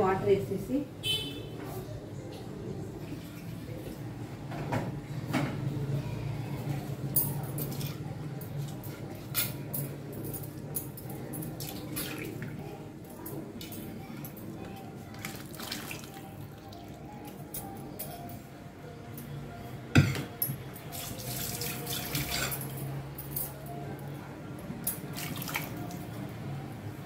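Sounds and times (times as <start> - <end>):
water pouring into a pot: 15.1 - 16.7, 20.9 - 22.5
clinks and knocks against pot: 20.0 - 20.7.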